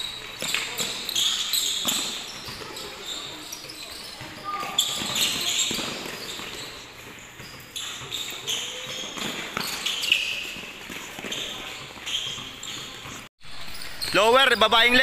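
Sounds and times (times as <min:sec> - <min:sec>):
sneakers squeaking on court: 0:00.0 - 0:15.0.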